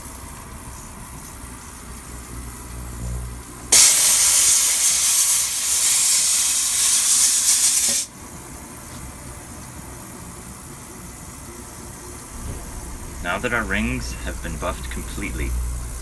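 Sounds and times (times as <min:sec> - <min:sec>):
steam cleaner hiss: 0:03.7 - 0:08.1.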